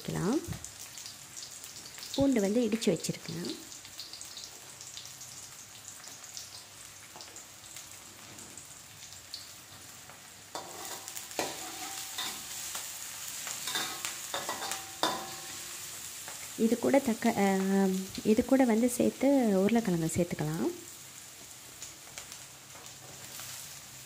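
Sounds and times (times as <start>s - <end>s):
onions sizzling in oil: 0.0s - 24.0s
metal spatula scraping a wok: 10.5s - 12.8s, 13.6s - 15.8s.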